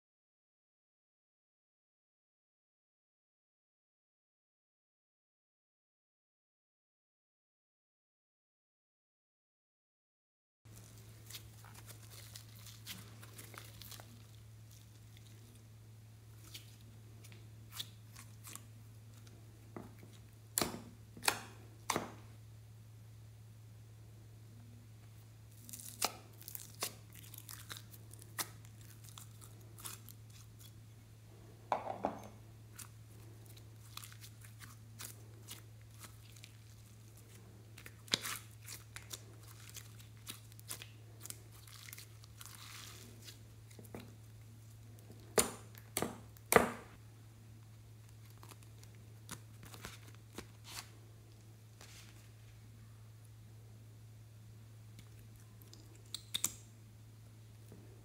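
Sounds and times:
low steady hum: 0:10.7 - 0:58.0
slime popping and crackling: 0:25.5 - 0:30.8, 0:32.7 - 0:44.2.

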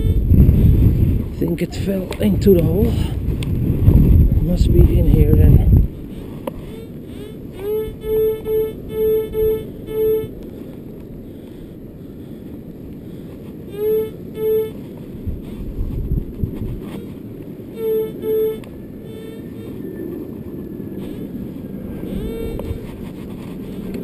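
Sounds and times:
wind noise on microphone: 0:00.0 - 0:24.0
metal detector beeping: 0:06.6 - 0:10.4, 0:17.7 - 0:21.3.

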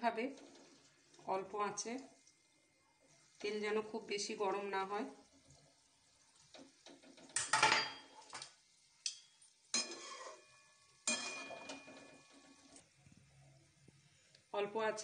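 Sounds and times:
oil sizzling: 0:00.0 - 0:13.0
metal spoon scraping pan: 0:09.7 - 0:12.5
pan ringing: 0:10.5 - 0:12.4.

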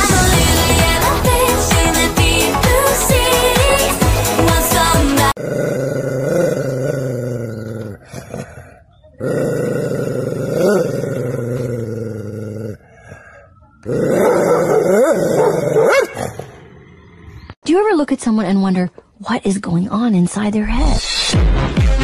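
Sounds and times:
dog growling: 0:05.4 - 0:13.2, 0:13.8 - 0:17.3.

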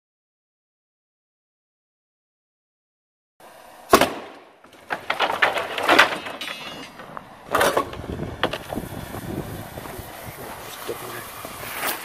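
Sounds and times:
wooden pallets toppling and clattering: 0:04.0 - 0:08.9.

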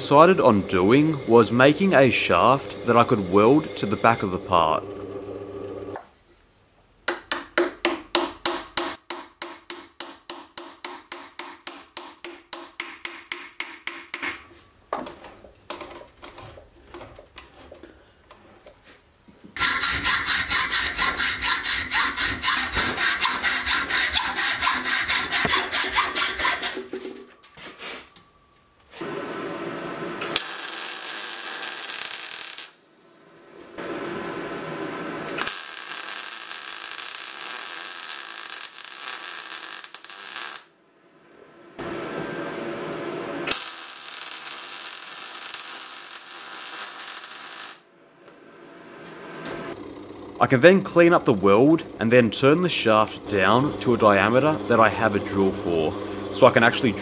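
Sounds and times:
long hissing bursts: 0:00.0 - 0:04.8
hacksaw cutting steel rod: 0:19.6 - 0:26.9.

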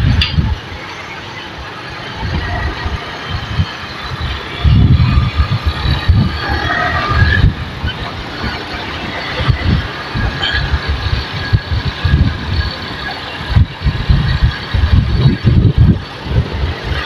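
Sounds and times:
motorcycle engine and road noise: 0:00.0 - 0:17.0
wind buffeting microphone: 0:00.0 - 0:17.0.

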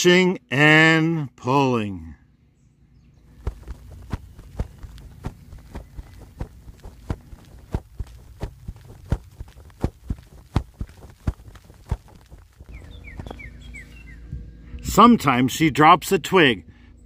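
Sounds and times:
low steady rumble: 0:02.0 - 0:17.0
footsteps walking: 0:03.4 - 0:14.4.

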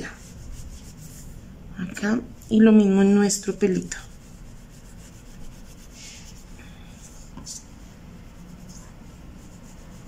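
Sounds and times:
cloth rubbing foam: 0:00.0 - 0:01.4, 0:03.6 - 0:10.0.

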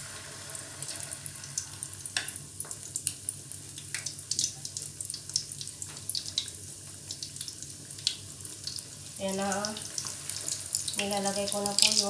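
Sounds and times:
chicken sizzling in oil: 0:00.0 - 0:12.0
oil crackling and popping: 0:01.5 - 0:09.0.

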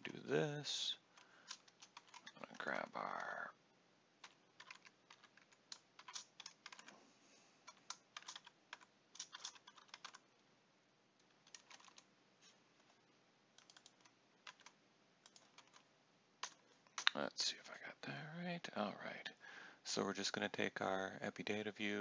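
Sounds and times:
faint keyboard typing: 0:00.8 - 0:03.5, 0:04.2 - 0:07.0, 0:07.6 - 0:10.5, 0:11.2 - 0:17.7.

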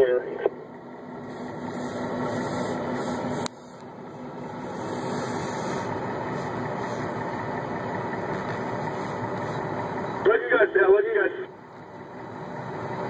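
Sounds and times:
train rumbling: 0:00.0 - 0:13.0.

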